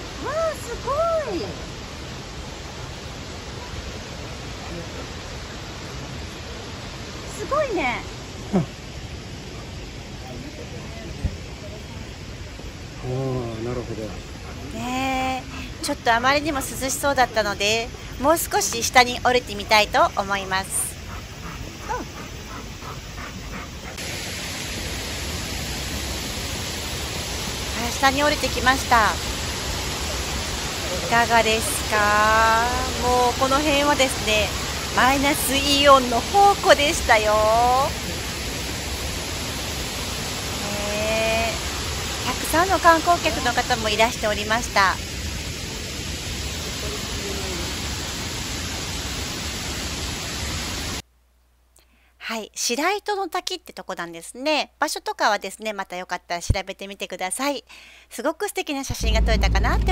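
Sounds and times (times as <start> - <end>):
stream flowing: 0.0 - 51.0, 58.9 - 59.9
waterfall rushing: 0.0 - 51.0, 59.0 - 59.9
quiet open-air background: 51.0 - 59.9.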